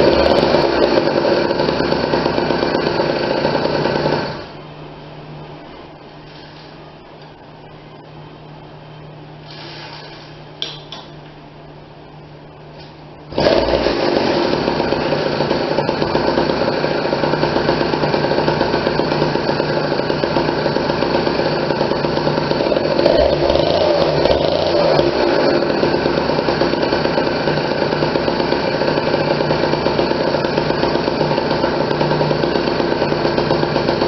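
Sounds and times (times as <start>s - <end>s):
two-stroke engine idling and revving: 0.0s - 4.6s, 13.3s - 34.0s.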